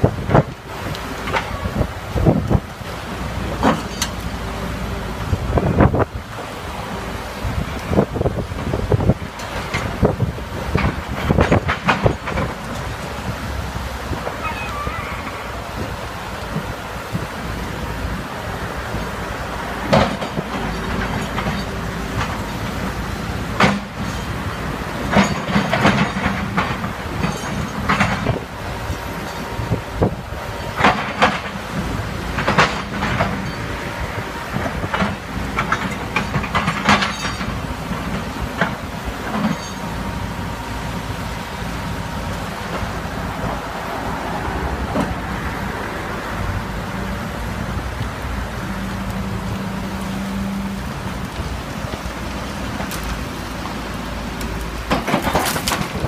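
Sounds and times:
excavator diesel engine running: 0:00.0 - 0:56.0
river rushing: 0:00.0 - 0:56.0
debris clattering and cracking: 0:34.6 - 0:39.9, 0:51.2 - 0:56.0.

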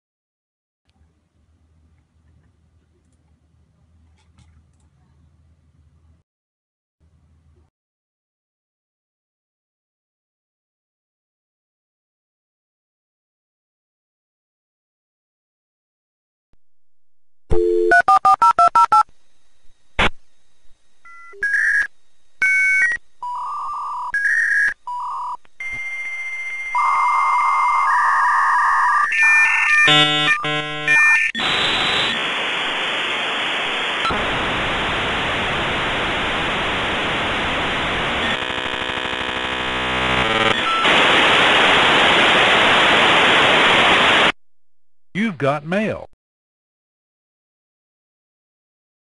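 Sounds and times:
dial tone: 0:17.5 - 0:19.1, 0:21.0 - 0:32.1, 0:38.2 - 0:40.9
modem tones chirps and warbles: 0:17.5 - 0:32.6, 0:36.1 - 0:41.2
touch-tone dialing beeps: 0:17.6 - 0:19.1
loud modem hiss: 0:29.9 - 0:44.4.

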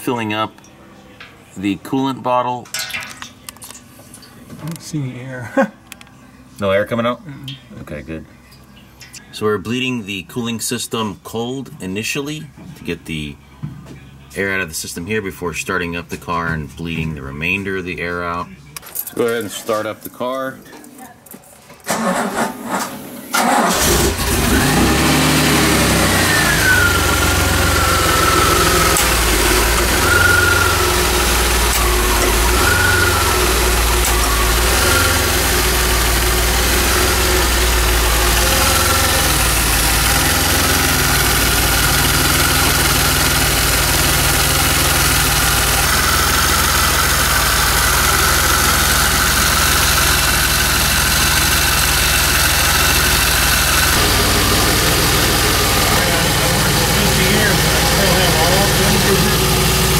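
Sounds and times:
car engine starting and idling: 0:21.8 - 0:59.9.

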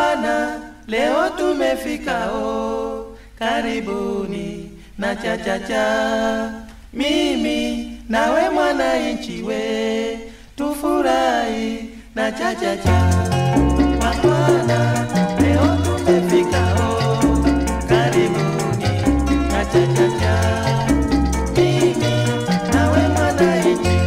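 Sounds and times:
unaccompanied singing: 0:00.0 - 0:24.0.

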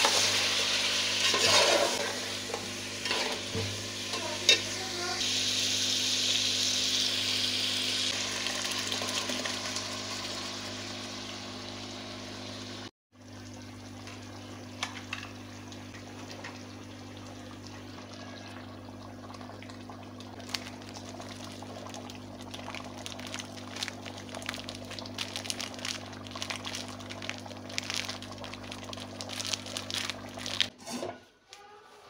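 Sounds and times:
gravy bubbling in a pot: 0:16.1 - 0:30.7.

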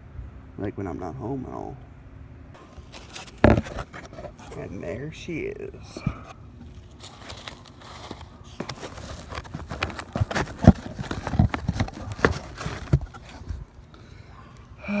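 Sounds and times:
foam and cardboard rustling: 0:02.8 - 0:04.7, 0:05.9 - 0:13.7.

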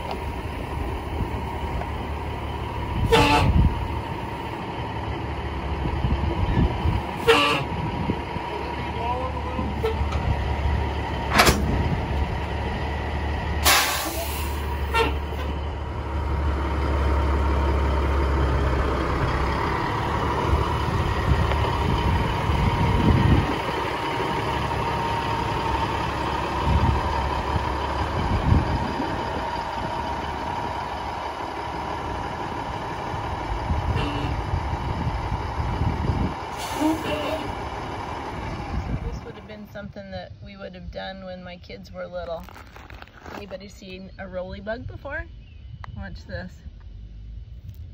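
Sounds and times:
truck diesel engine rumble: 0:00.0 - 0:47.9
short sharp hisses: 0:13.6 - 0:14.7
tyres on gravel: 0:41.7 - 0:44.6.

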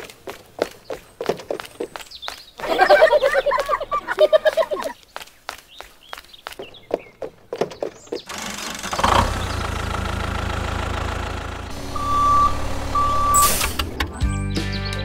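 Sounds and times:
tractor engine idling: 0:08.3 - 0:14.2
reversing beeps: 0:11.9 - 0:13.8
short hiss: 0:13.3 - 0:13.9.

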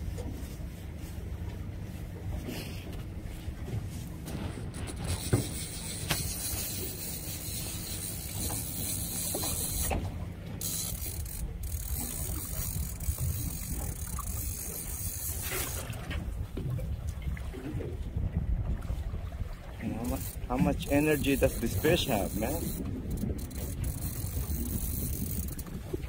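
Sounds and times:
boat engine rumble: 0:00.0 - 0:26.0
fishing reel ratcheting clicks: 0:05.0 - 0:10.0, 0:10.6 - 0:15.8, 0:20.0 - 0:25.8.

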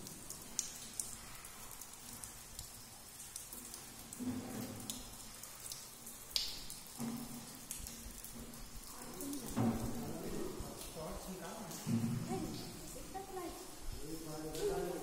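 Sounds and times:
water dripping on stone floor: 0:00.0 - 0:15.0.

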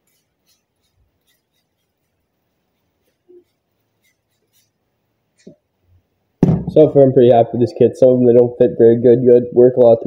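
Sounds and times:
soft knock: 0:06.4 - 0:06.8.

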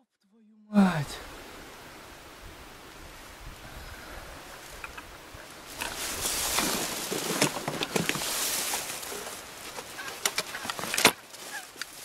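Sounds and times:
rustling: 0:04.4 - 0:12.0
faint bird calls: 0:09.0 - 0:11.8.

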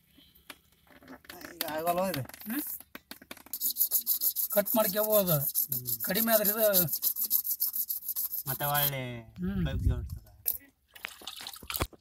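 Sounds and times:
hand tool rasping on plastic pipe: 0:03.3 - 0:09.0.

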